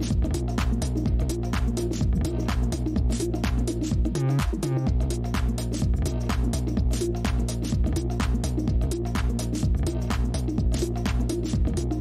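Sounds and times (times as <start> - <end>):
background music with steady beat: 0.0 - 12.0
low bass notes: 0.0 - 12.0.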